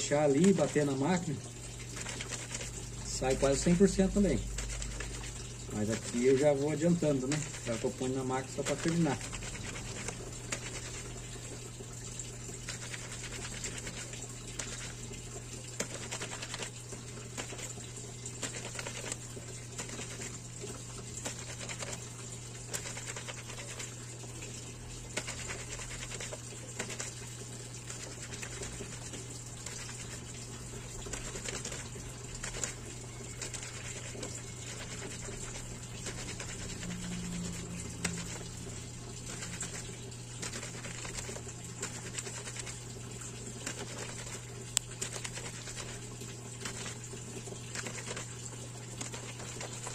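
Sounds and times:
wet fabric rubbing and squelching: 0:00.0 - 0:11.5, 0:25.1 - 0:49.9
water running from tap: 0:00.0 - 0:49.9.

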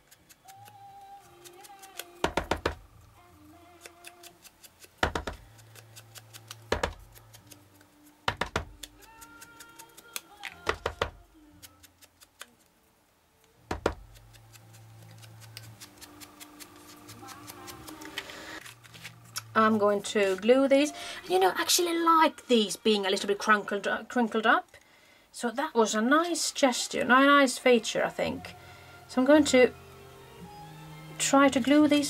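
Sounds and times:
quiet background music: 0:00.0 - 0:32.0
taps and knocks on tabletop: 0:02.2 - 0:02.8, 0:05.0 - 0:05.4, 0:06.7 - 0:07.0, 0:08.3 - 0:08.8, 0:13.7 - 0:14.0.

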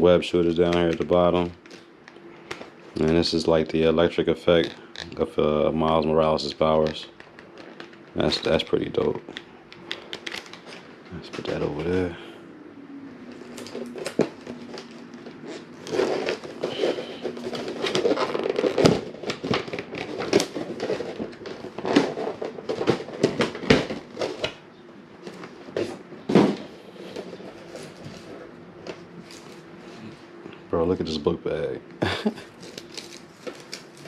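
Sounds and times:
plastic packaging crinkling: 0:09.8 - 0:12.1, 0:13.3 - 0:24.6, 0:32.4 - 0:34.0.

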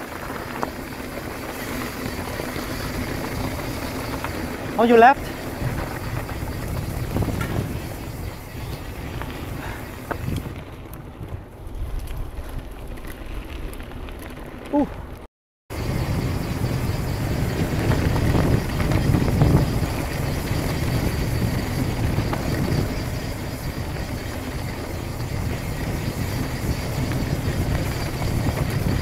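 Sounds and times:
wind on microphone: 0:00.0 - 0:13.7, 0:14.7 - 0:29.0
bike tyres rolling on dirt: 0:00.0 - 0:29.0.

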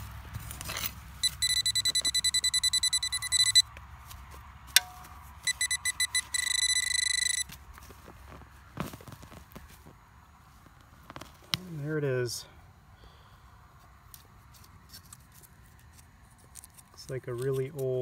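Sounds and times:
pinpointer beeping rapidly: 0:01.2 - 0:03.6, 0:05.5 - 0:07.4
steady detector tone: 0:01.2 - 0:03.7, 0:04.8 - 0:07.5.

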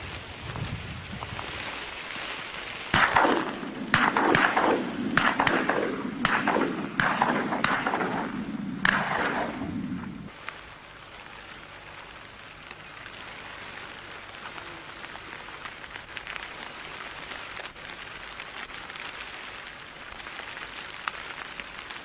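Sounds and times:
shotgun shots with echo: 0:02.9 - 0:10.2.

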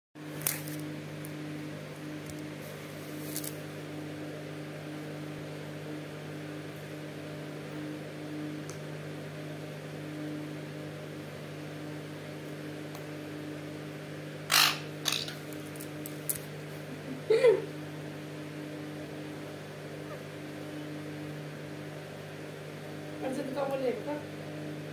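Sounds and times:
electrical hum: 0:00.2 - 0:24.9
parakeets squawking: 0:14.5 - 0:15.4.

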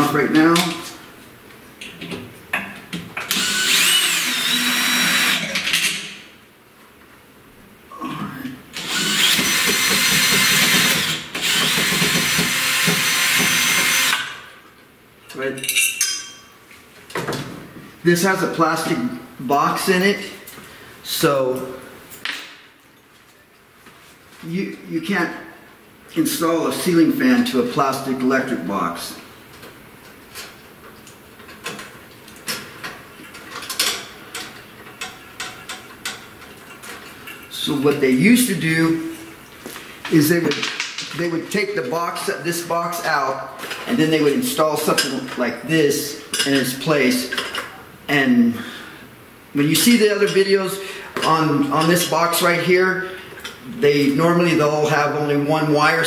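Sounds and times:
cordless drill whining: 0:03.3 - 0:05.6, 0:08.8 - 0:14.3.

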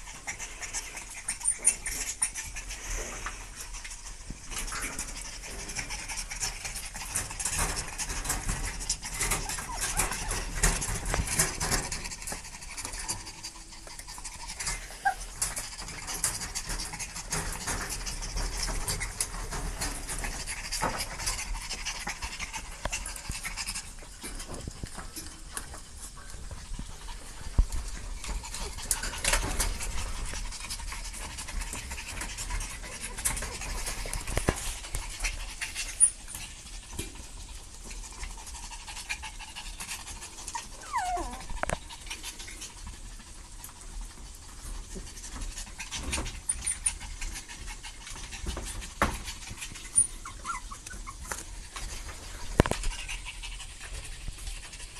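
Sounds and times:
dogs panting: 0:00.0 - 0:54.9
puppy pawing at wire cage: 0:03.2 - 0:37.2.

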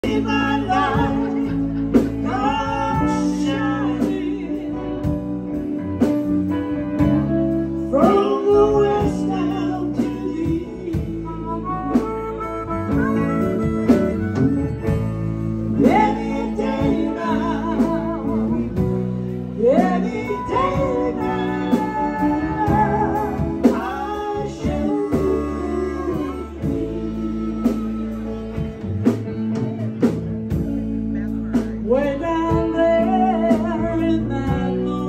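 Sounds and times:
person singing: 0:00.0 - 0:30.8, 0:31.4 - 0:35.0
live rock band: 0:00.0 - 0:35.0.

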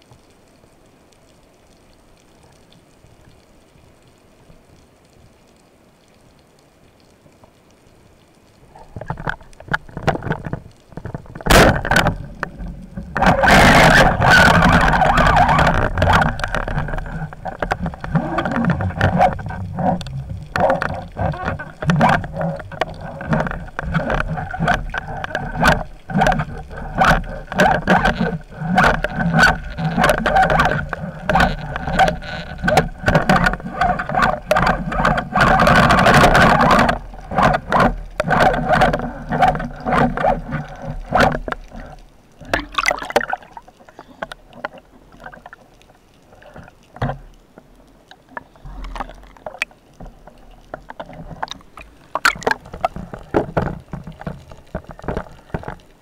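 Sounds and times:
underwater rushing: 0:06.3 - 0:56.0
scraping clicking and knocking of gear: 0:08.9 - 0:45.6, 0:48.2 - 0:56.0.

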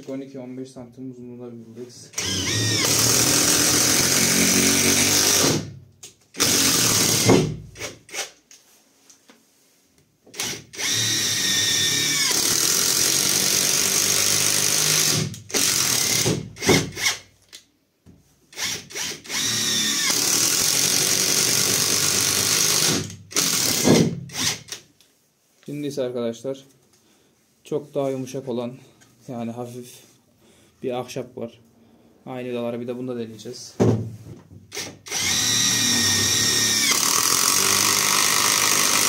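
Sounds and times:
impact wrench driving screw into wood: 0:02.2 - 0:05.8, 0:06.4 - 0:08.4, 0:10.3 - 0:17.3, 0:18.5 - 0:24.9, 0:34.7 - 0:39.0.

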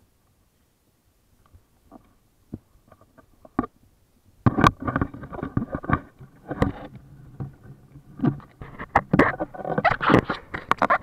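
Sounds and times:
kayak knocks and rattles: 0:04.4 - 0:11.0.

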